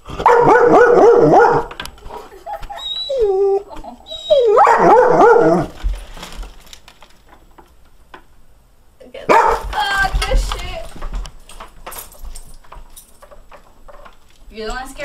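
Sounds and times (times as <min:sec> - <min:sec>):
dog whining and yelping: 0:00.2 - 0:05.8.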